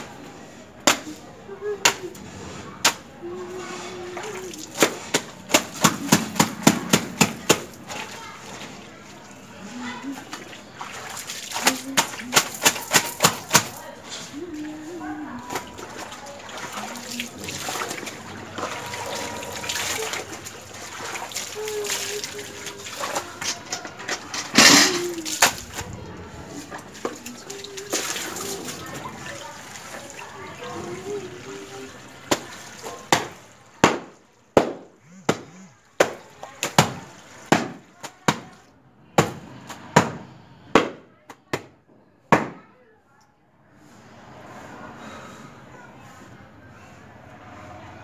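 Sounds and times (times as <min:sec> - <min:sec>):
wet towel slapping: 0:04.3 - 0:08.2, 0:10.3 - 0:13.8, 0:24.6 - 0:25.9, 0:32.3 - 0:38.6
water trickling: 0:14.4 - 0:24.0.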